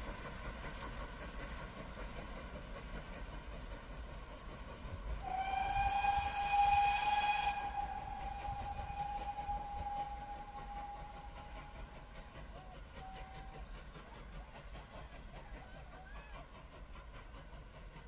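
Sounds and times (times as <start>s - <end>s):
train whistle: 5.2s - 13.7s.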